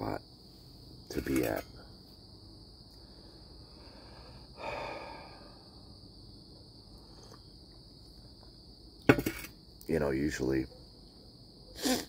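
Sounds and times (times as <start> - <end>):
crickets chirping: 0.0 - 12.0
man sighing: 4.6 - 5.6.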